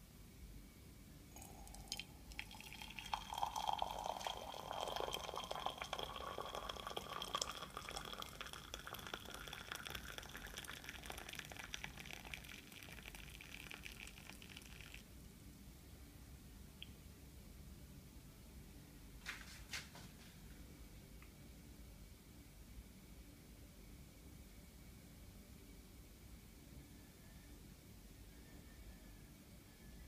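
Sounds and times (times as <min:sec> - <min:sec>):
hot water pouring into mug: 0:01.4 - 0:15.0.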